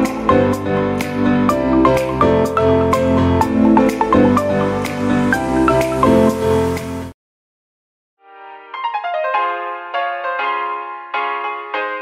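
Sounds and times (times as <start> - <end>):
instrumental background music: 0.0 - 7.1.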